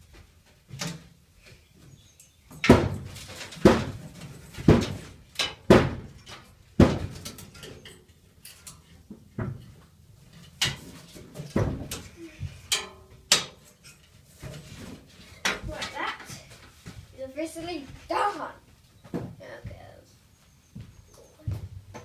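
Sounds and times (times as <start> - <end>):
hollow metal knocks and bangs: 2.5 - 7.9, 10.5 - 14.8.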